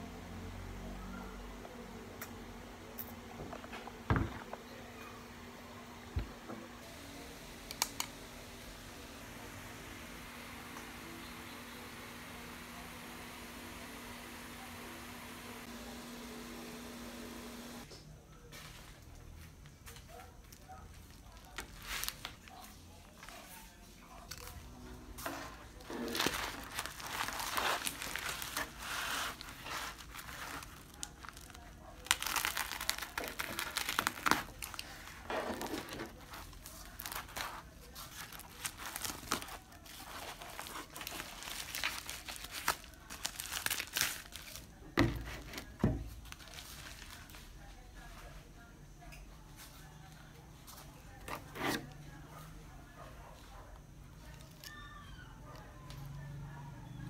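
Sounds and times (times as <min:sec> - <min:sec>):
padded mailer crinkling: 0:25.4 - 0:47.6.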